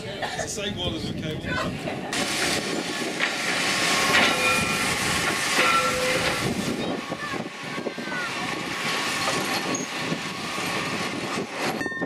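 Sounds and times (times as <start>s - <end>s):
tram running on rails: 0.0s - 12.0s
wheel squeals: 4.0s - 7.1s, 9.2s - 10.9s.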